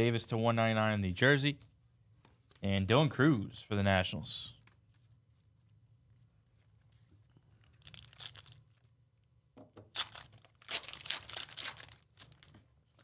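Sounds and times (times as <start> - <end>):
foil wrapper tearing and crinkling: 7.6 - 8.9, 10.0 - 12.5.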